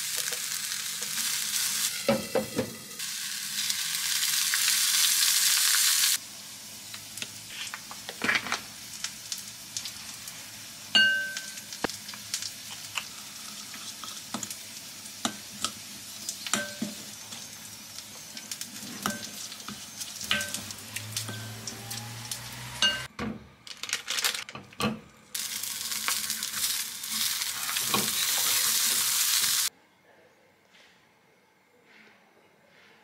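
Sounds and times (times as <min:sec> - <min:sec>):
tofu sizzling in oil: 0:00.0 - 0:02.0, 0:03.0 - 0:22.7, 0:25.4 - 0:29.7.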